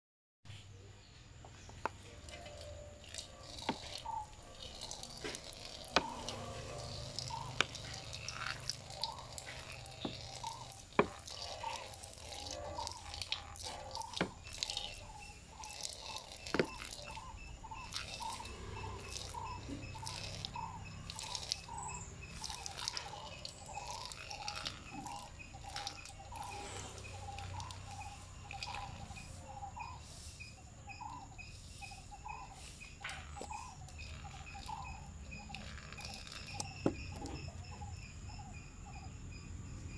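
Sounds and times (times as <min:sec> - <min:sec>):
urine splashing into a pot: 0:02.3 - 0:29.0.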